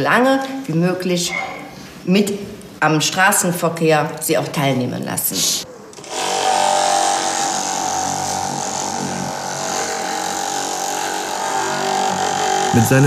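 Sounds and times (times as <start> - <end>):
electric polisher motor whine: 6.0 - 13.0.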